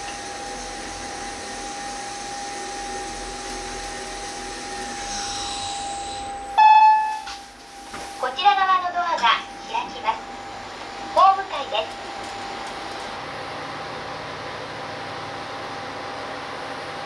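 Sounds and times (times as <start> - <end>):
elevator whirring hiss: 0.0 - 8.4
elevator chime: 4.8 - 7.4.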